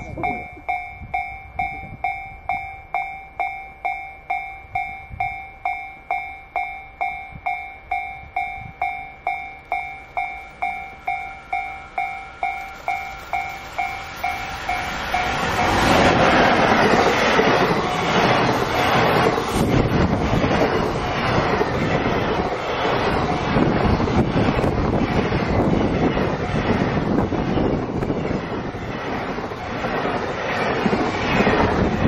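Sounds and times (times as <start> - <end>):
level crossing bell ringing: 0.0 - 15.9
freight train passing: 0.0 - 32.0.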